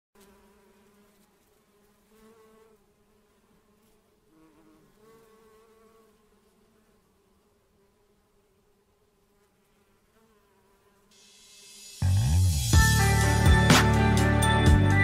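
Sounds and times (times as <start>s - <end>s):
honeybees buzzing: 0.2s - 15.0s.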